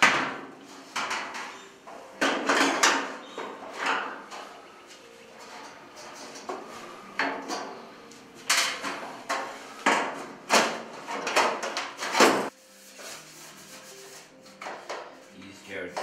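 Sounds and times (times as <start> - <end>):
metal cover knocks and clanks: 0.0 - 4.4, 8.5 - 12.5.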